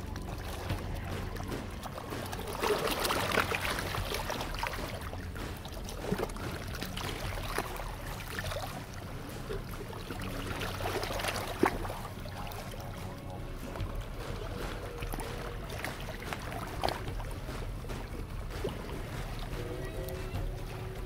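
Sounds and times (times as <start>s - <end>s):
sharp water slap: 0.0s - 21.0s
waves lapping on rocky shore: 0.0s - 21.0s.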